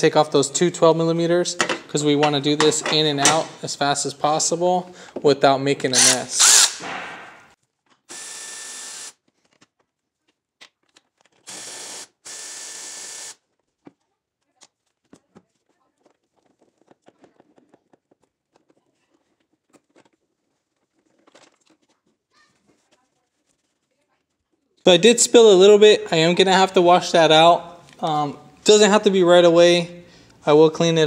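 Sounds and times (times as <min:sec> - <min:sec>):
power ratchet spinning: 0:06.0 - 0:06.8, 0:08.1 - 0:09.2, 0:11.4 - 0:13.4.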